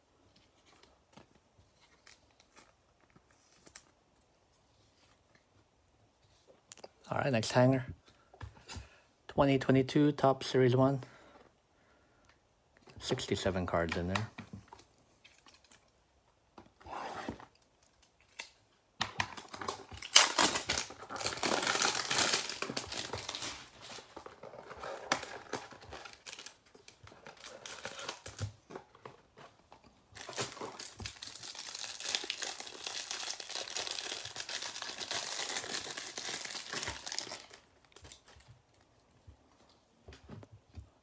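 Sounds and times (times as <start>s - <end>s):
plastic wrapping crinkling and tearing: 19.2s - 29.0s, 30.1s - 38.4s.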